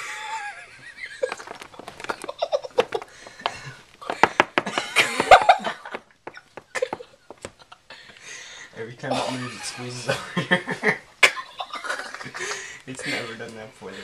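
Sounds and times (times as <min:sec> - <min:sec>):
people laughing and giggling: 0:00.0 - 0:13.4.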